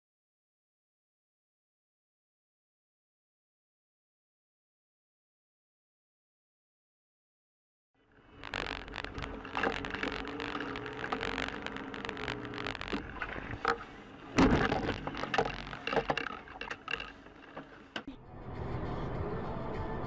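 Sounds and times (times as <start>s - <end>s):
car engine and road noise: 8.0s - 20.0s
clicks and knocks: 8.4s - 18.1s
loud thump: 14.4s - 14.9s.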